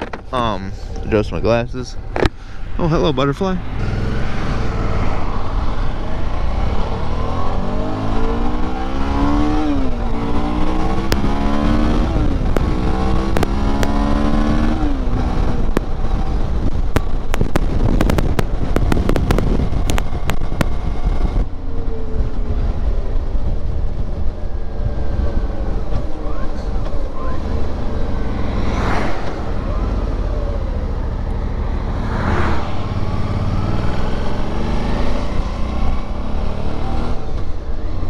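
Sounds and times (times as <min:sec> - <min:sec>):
motorcycle engine accelerating: 0:02.1 - 0:38.0
wind rush on microphone: 0:03.5 - 0:38.0.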